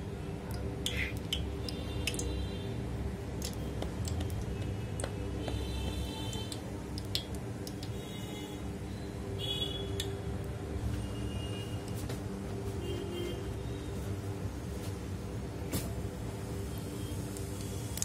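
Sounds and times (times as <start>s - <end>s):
oil crackling and popping: 0.5s - 2.4s, 3.2s - 8.0s, 16.8s - 18.0s.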